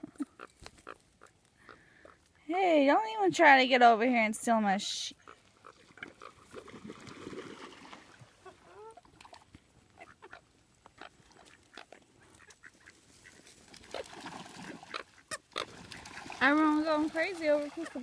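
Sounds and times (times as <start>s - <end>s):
coots calling: 0.0s - 2.3s, 5.1s - 6.4s, 9.9s - 15.8s.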